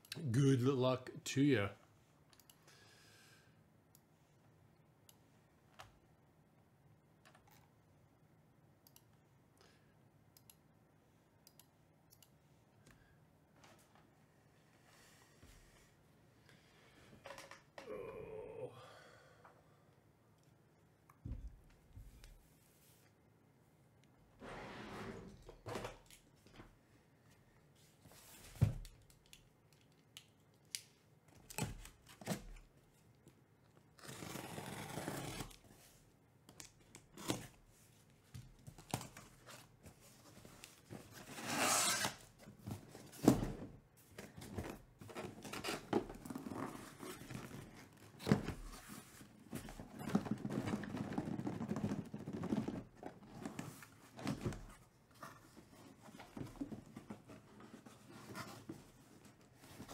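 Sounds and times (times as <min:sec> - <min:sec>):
cardboard flaps rustling and scraping: 0:38.9 - 0:59.9
packing tape tearing: 0:41.2 - 0:42.3.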